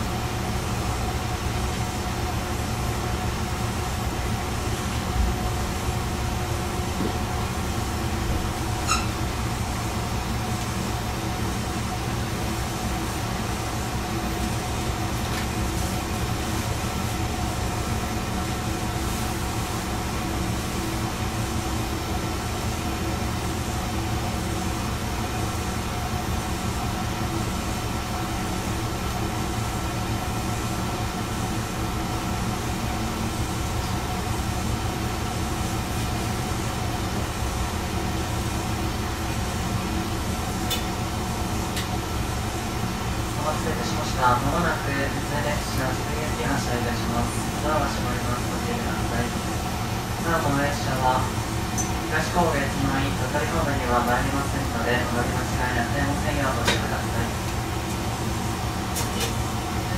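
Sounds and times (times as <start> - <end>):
railcar engine rumbling: 0.0 - 59.9
short high squeak: 8.8 - 9.2.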